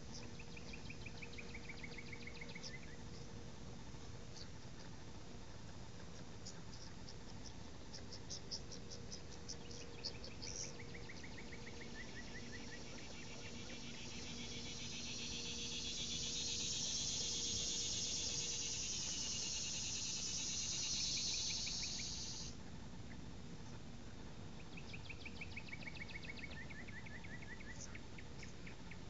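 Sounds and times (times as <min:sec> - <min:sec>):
insect trilling buzz: 0:10.4 - 0:22.6.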